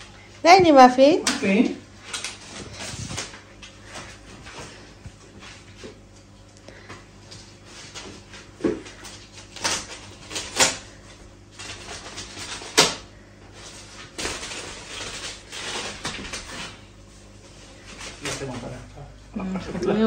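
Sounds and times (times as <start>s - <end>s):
plastic wrap rustling and crinkling: 0.0s - 6.4s, 7.2s - 18.9s
scissors cutting plastic: 9.0s - 10.8s, 11.6s - 13.0s.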